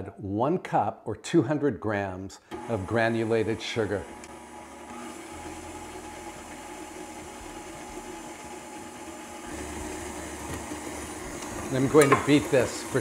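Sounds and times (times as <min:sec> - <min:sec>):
stand mixer motor hum: 0:02.5 - 0:13.0.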